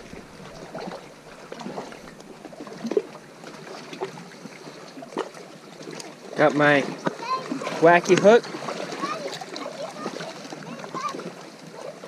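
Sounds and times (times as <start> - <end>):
paddle board knocking: 0.0 - 2.6
small waves lapping on rocks: 0.0 - 12.0.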